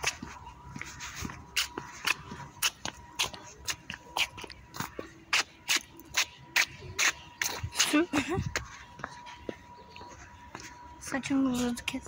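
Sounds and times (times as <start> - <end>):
footsteps: 0.0 - 12.0.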